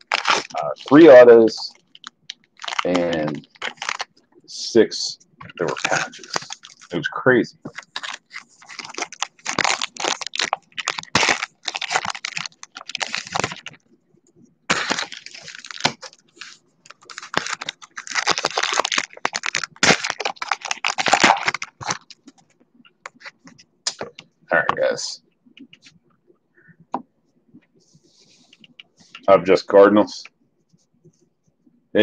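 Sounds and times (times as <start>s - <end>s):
card pack rustling and crackling: 0.0s - 4.1s, 5.4s - 13.8s, 14.7s - 24.2s.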